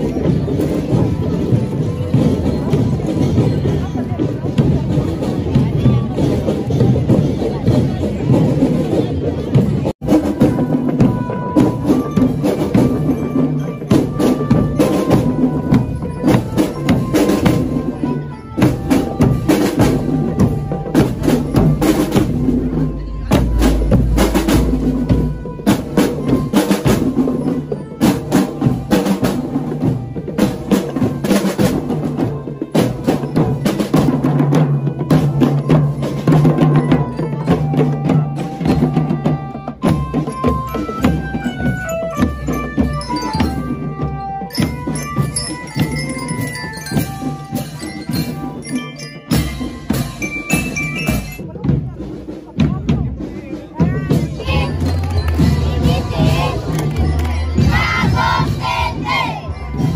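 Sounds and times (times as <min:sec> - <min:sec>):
snare and bass drums marching: 0:00.0 - 0:59.9
high melody line: 0:35.4 - 0:51.7.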